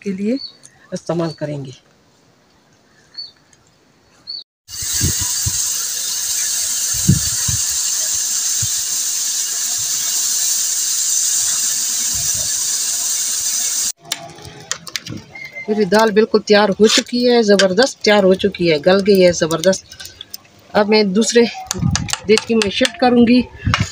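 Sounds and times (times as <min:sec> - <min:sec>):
pressure cooker steam whistling hiss: 0:04.7 - 0:14.0.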